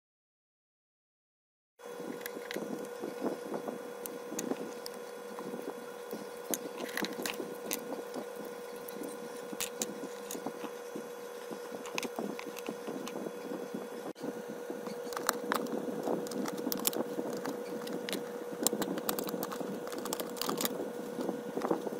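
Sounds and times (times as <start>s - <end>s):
steady background hum: 1.8s - 21.9s
small parts clicking on wooden floor: 15.1s - 20.7s.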